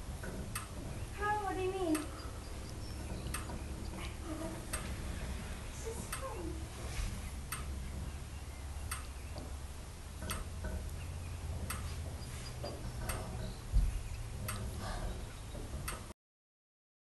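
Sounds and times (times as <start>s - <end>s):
low steady rumble: 0.0s - 16.1s
sharp ticks: 0.2s - 5.3s, 6.0s - 6.4s, 7.5s - 8.0s, 8.8s - 9.5s, 10.2s - 14.8s.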